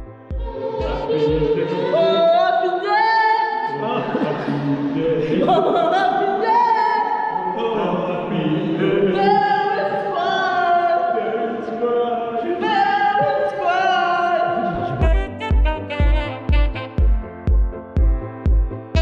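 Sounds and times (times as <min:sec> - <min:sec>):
unaccompanied choir singing: 0:00.0 - 0:15.2.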